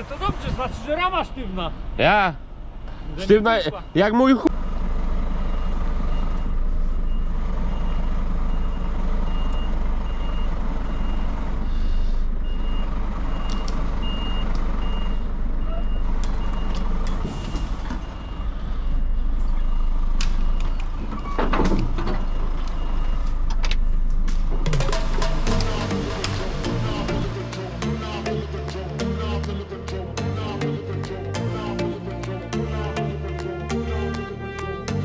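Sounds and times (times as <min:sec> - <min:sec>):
diesel engine running: 0:00.0 - 0:35.0
truck reversing alarm beeping: 0:02.9 - 0:27.6.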